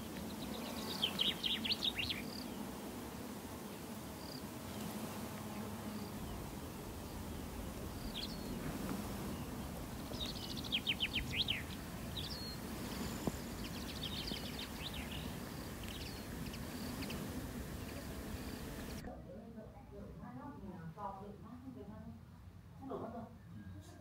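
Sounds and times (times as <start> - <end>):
songbirds chirping: 0.0 - 19.2
background hiss: 0.0 - 24.0.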